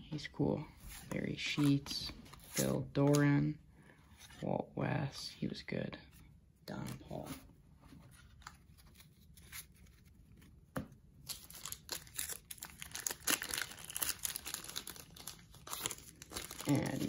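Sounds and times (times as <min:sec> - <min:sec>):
wrapper tearing and crinkling: 0:11.2 - 0:17.0.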